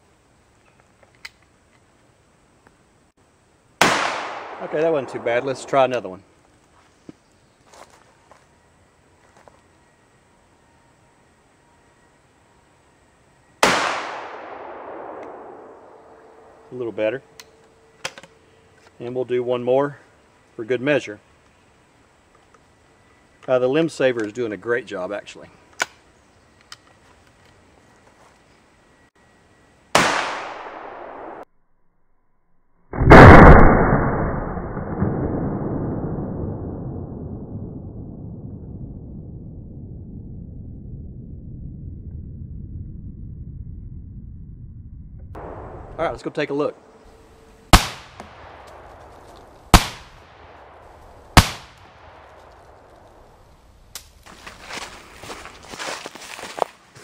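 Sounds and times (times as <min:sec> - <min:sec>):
gunshot echo: 0:03.8 - 0:06.1, 0:13.6 - 0:16.6, 0:30.0 - 0:31.4, 0:33.0 - 0:35.2, 0:45.4 - 0:46.3, 0:47.7 - 0:53.3
shotgun blasts: 0:03.8 - 0:06.1, 0:13.6 - 0:16.6, 0:29.9 - 0:31.4, 0:33.0 - 0:34.4, 0:45.4 - 0:46.2, 0:47.7 - 0:53.3.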